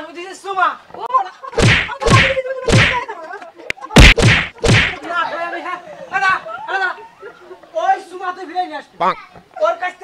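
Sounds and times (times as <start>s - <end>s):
sharp whacks of blows: 1.6s - 3.0s, 4.0s - 5.0s.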